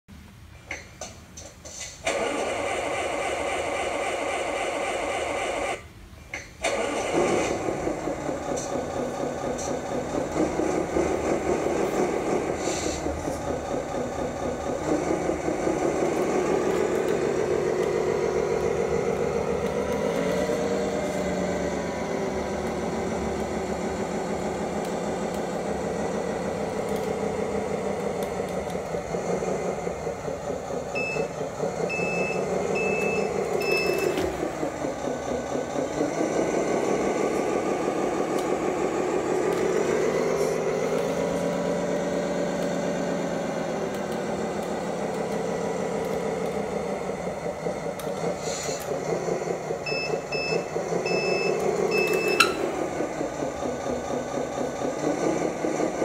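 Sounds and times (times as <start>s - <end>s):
diesel truck engine revving: 6.6s - 56.0s
reversing beeps: 31.0s - 31.3s, 31.9s - 34.2s, 49.8s - 52.6s.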